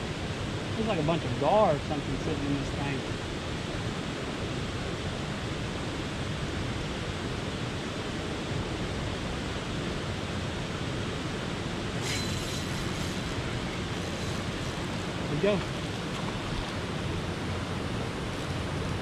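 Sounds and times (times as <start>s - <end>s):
wind buffeting microphone: 11.0s - 19.0s
fishing line hiss: 11.9s - 16.9s.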